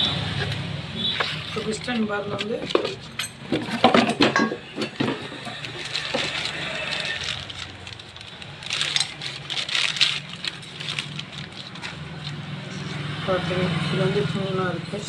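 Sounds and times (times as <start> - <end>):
metal engine parts clinking: 0.2 - 13.1.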